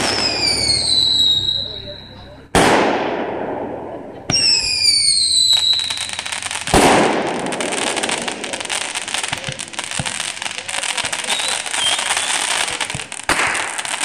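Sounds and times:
firework bang: 0.0 - 1.9, 2.5 - 14.0
firework falling whistle: 0.0 - 2.3, 4.3 - 6.8, 11.2 - 13.6
spark fountain crackling and hissing: 5.2 - 14.0.

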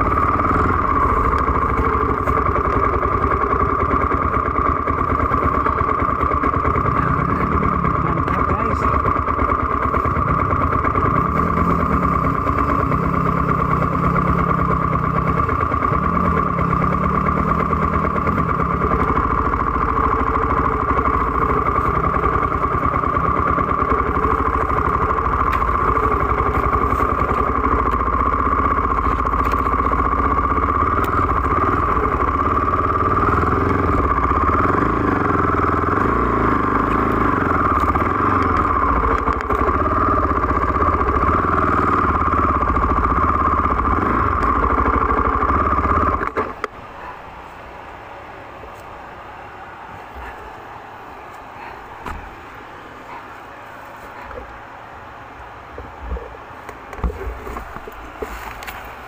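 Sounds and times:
dirt bike engine revving: 0.0 - 46.7.

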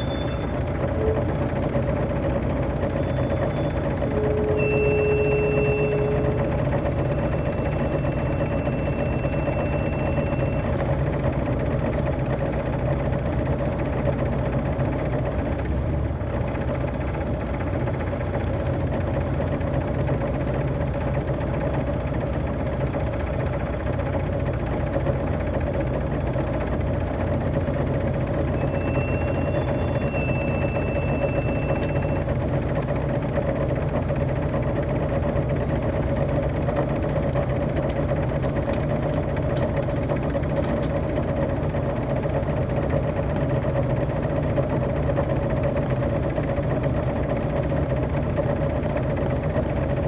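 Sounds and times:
bus engine running: 0.0 - 50.0
thin high tone: 3.0 - 10.7, 28.5 - 32.3.

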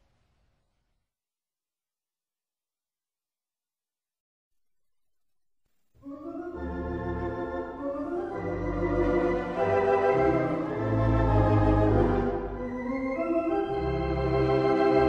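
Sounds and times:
organ chords with deep bass: 6.1 - 15.0.

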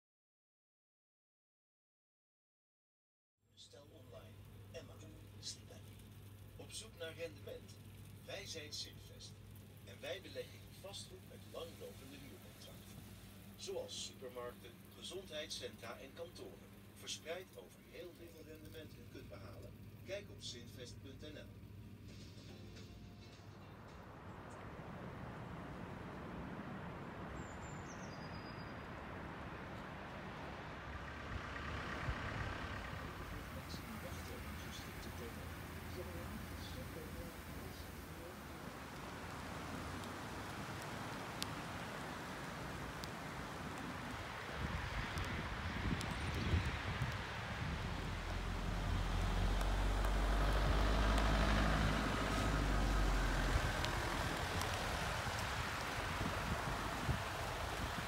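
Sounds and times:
low outdoor rumble: 3.5 - 58.0
vehicle engine running: 21.6 - 58.0
high falling bird call: 27.1 - 30.1.

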